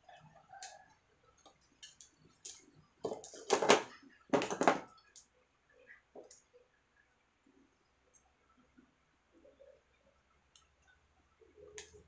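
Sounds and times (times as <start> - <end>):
small clicks and taps: 1.4 - 3.7.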